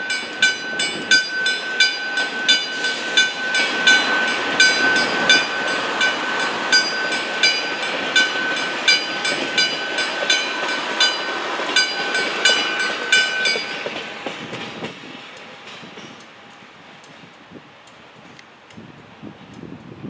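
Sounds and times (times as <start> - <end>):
level crossing warning bell: 0.0 - 14.0
train rumble and wheel clatter: 0.0 - 20.0.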